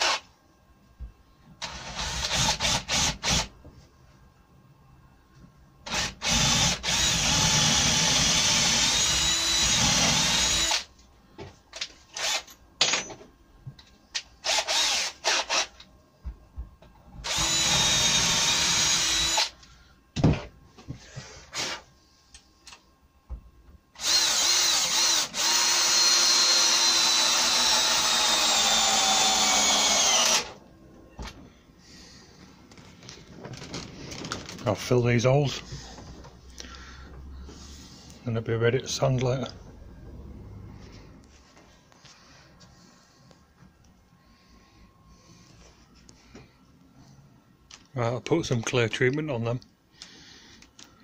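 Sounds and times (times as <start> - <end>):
cordless drill whining: 0.0 - 0.2, 1.6 - 3.5, 5.9 - 10.9, 12.2 - 12.6, 14.4 - 15.7, 17.2 - 19.6, 24.0 - 30.6.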